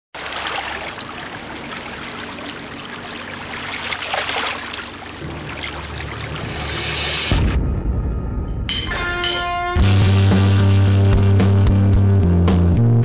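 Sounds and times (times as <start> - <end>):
sea water splashing against rocks: 0.1 - 7.4.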